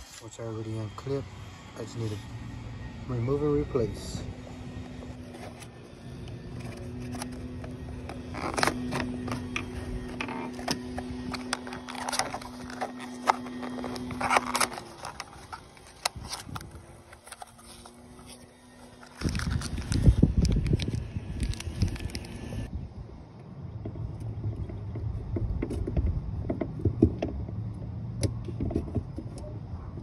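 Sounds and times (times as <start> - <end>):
steady low hum: 0.0 - 30.0
cardboard box opened: 4.9 - 22.3
plastic bag crinkling: 6.5 - 22.4.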